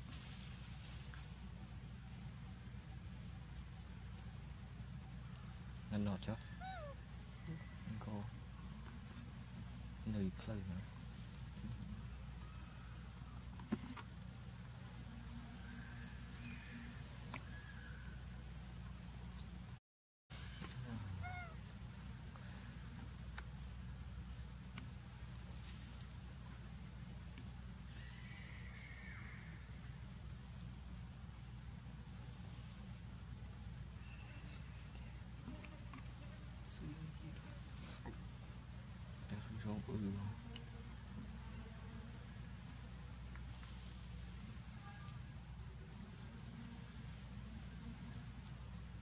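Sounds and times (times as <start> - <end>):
high-pitched insect trill: 0.0 - 49.0
low outdoor hum: 0.0 - 49.0
faint short animal calls: 6.3 - 8.0, 20.5 - 21.6.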